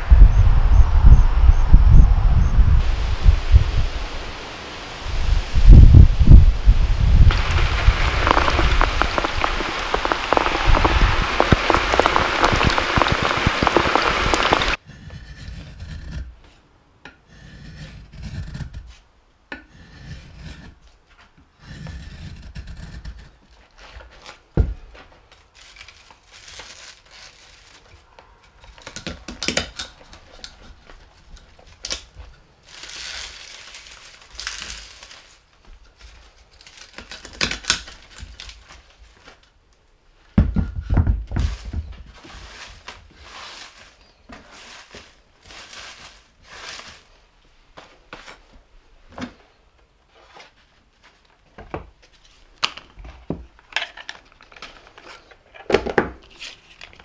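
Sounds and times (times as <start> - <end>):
rain splashing into water: 7.2 - 14.8
knife shaving wood: 7.3 - 16.6, 17.3 - 19.0, 21.6 - 39.5, 41.4 - 47.3.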